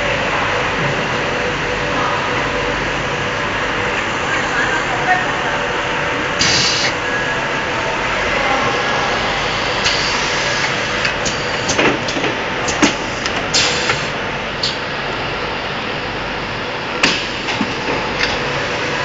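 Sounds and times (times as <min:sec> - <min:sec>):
printing machine humming: 0:00.0 - 0:19.0
machine clicks and knocks: 0:11.0 - 0:14.8.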